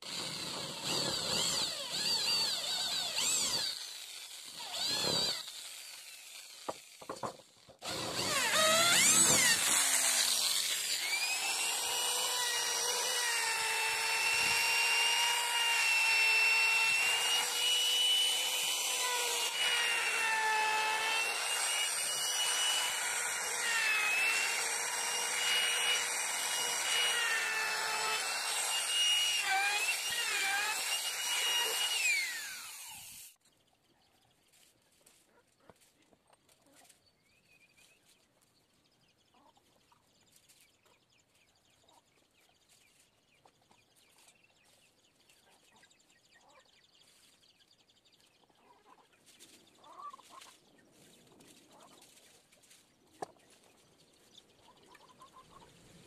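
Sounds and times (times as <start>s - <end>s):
electric drill revving bursts: 0.0s - 7.0s, 7.8s - 33.4s
router whining: 0.0s - 33.4s.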